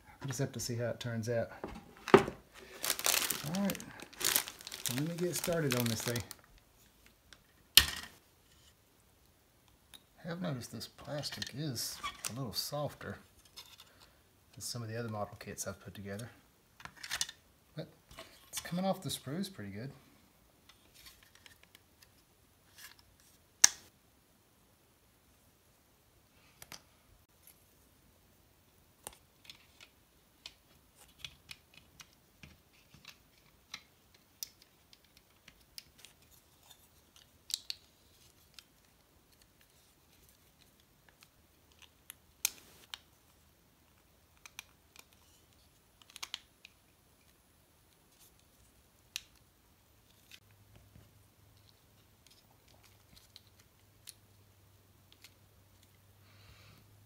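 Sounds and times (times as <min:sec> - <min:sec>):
plastic parts clicking and snipping: 0:43.9 - 0:47.4.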